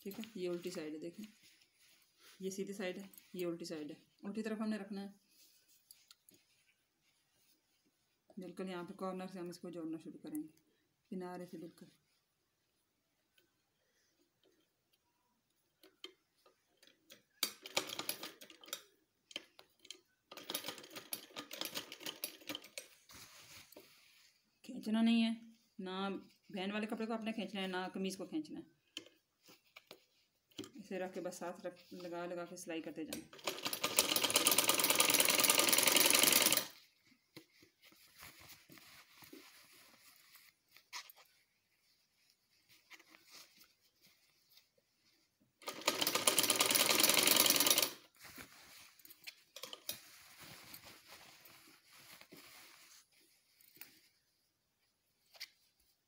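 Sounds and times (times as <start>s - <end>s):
fabric handling: 0.0s - 9.2s, 18.0s - 56.0s
sewing machine stitching: 33.3s - 36.8s, 45.6s - 48.0s.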